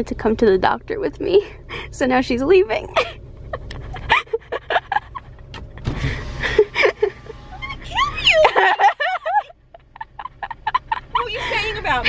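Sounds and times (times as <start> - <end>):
low rumble: 0.0 - 12.0
woman giggling: 2.9 - 5.6, 6.5 - 12.0.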